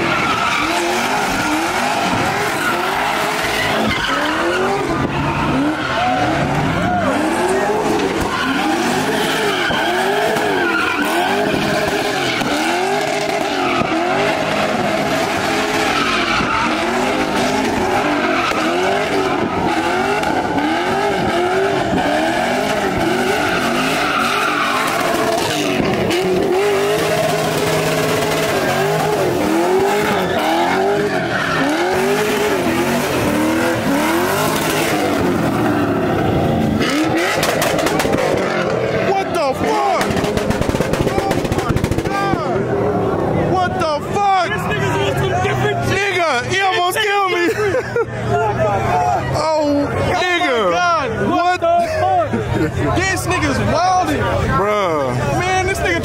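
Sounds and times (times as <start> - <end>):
tyres squealing: 0.0 - 42.6
car engine revving: 0.0 - 47.4.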